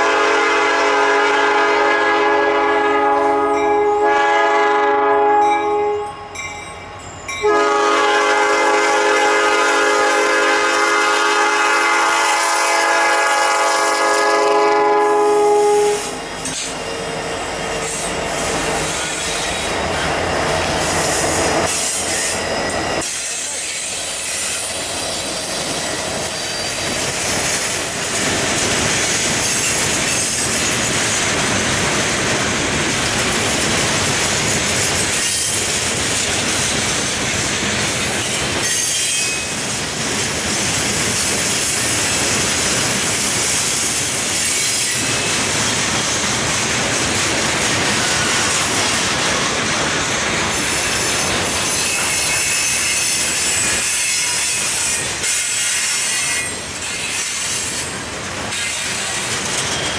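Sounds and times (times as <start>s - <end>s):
locomotive air horn blasts: 0.0s - 6.2s, 7.4s - 16.2s
train wheels clicking over rail joints: 16.1s - 59.9s.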